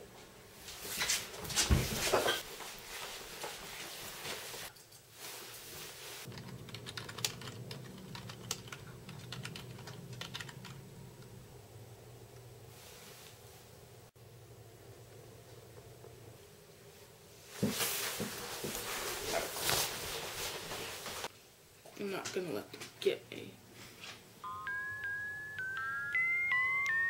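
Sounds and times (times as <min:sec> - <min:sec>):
keyboard typing: 0:06.3 - 0:10.9
rustling: 0:17.4 - 0:21.3.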